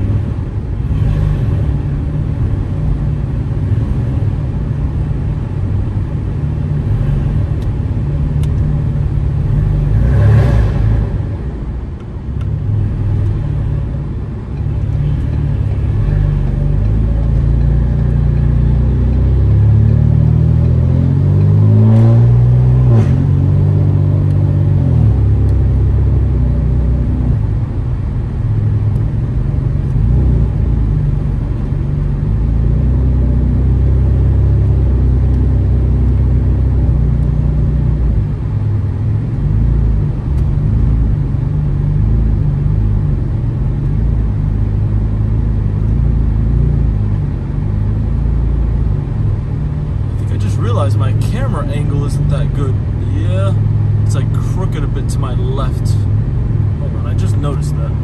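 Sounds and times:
car exhaust engine drone: 0.0 - 58.0.

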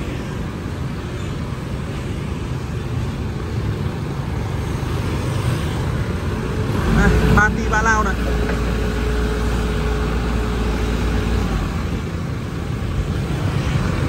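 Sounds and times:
motorbike traffic: 0.0 - 14.0
truck traffic: 0.0 - 14.0
forklift engine running: 6.0 - 14.0.

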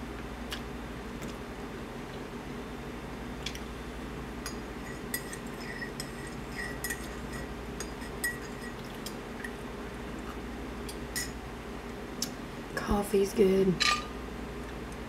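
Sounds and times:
spoon clinking in ceramic mug: 4.4 - 8.8.

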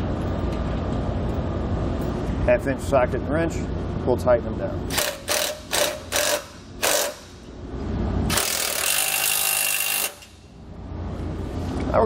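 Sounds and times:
impact wrench bursts: 4.9 - 7.5, 8.3 - 10.5.

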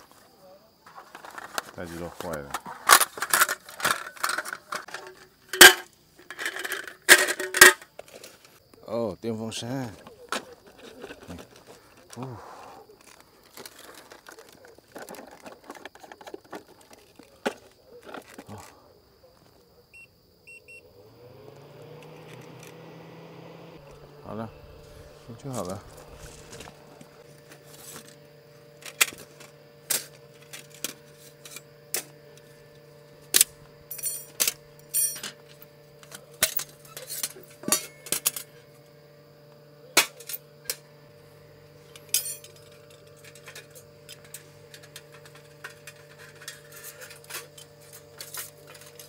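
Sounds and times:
metal cookware clanking: 2.8 - 7.8, 33.9 - 35.4, 36.1 - 38.6, 41.9 - 49.0.

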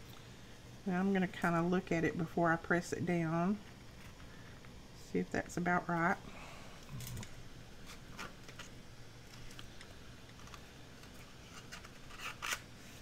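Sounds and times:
paper rustling and scraping: 10.4 - 13.0.

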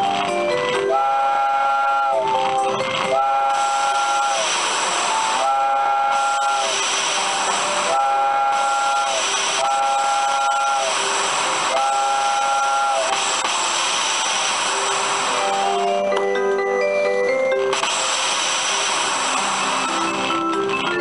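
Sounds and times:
recorded steam whistle tooting: 0.8 - 16.0
hiss of steam: 3.5 - 15.8, 17.8 - 20.3.

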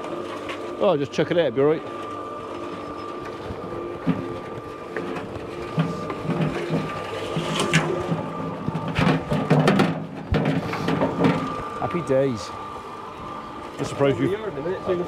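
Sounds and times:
cement mixer motor hum: 0.0 - 15.0
wheelbarrow rattling: 4.0 - 12.5.

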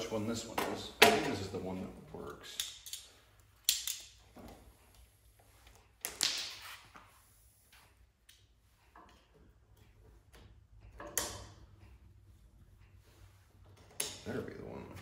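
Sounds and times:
soft clicks of clamps: 7.7 - 14.3.

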